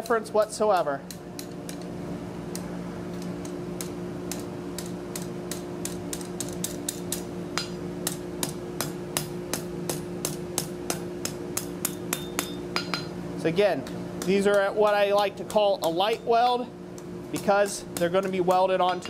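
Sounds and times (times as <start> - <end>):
steady low hum: 0.0 - 19.0
hammer striking steel on anvil: 3.4 - 13.2, 13.8 - 16.3, 17.4 - 19.0.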